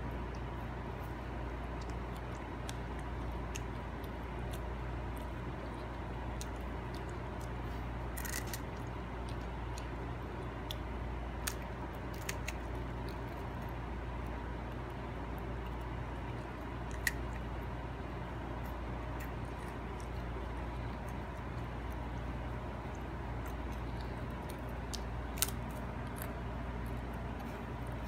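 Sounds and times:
steady low hum: 0.0s - 28.0s
child crunching cracker: 1.8s - 9.8s, 11.4s - 13.7s.

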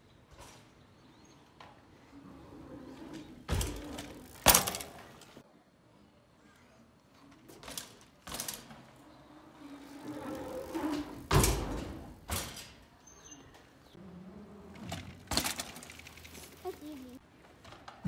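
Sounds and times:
mountain bike knocks and rattles: 3.0s - 5.4s, 7.4s - 9.0s, 10.3s - 12.9s, 14.8s - 16.7s.

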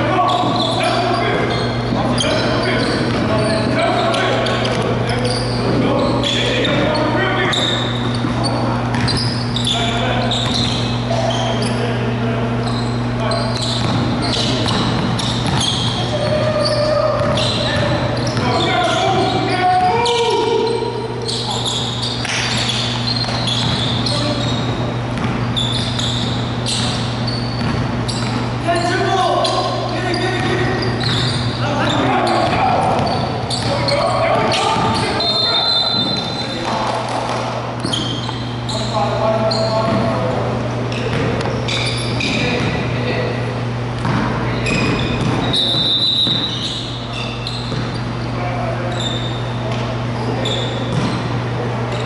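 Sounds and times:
low hum in hall: 0.0s - 52.0s
sneaker squeaks: 0.0s - 52.0s
basketball dribbling on hardwood: 13.7s - 16.4s, 25.2s - 25.4s, 27.6s - 28.4s, 44.0s - 45.6s.

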